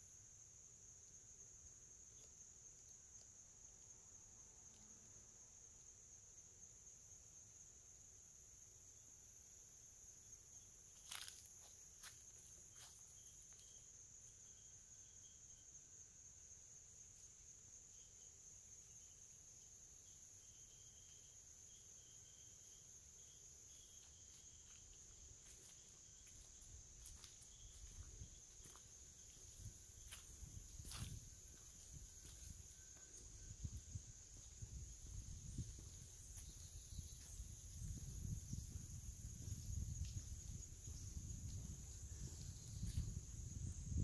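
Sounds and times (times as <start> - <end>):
high-pitched insect drone: 9.6 - 44.0.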